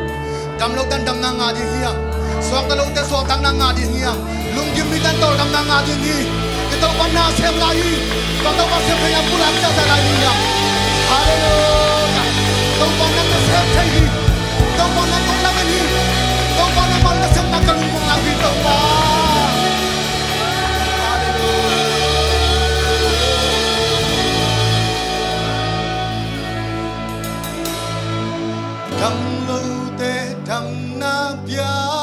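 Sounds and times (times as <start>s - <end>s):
lead singer: 0.0s - 32.0s
worship band playing: 0.0s - 32.0s
backing vocals: 8.3s - 25.9s.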